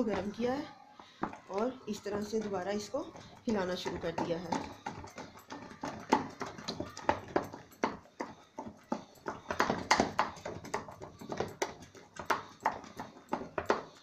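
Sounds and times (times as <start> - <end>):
spoon stirring cream in a steel pot: 0.0 - 14.0.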